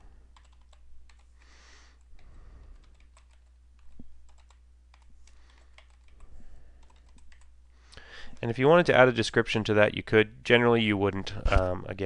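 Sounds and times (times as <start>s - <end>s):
keyboard typing: 0.0s - 1.4s, 2.0s - 7.5s.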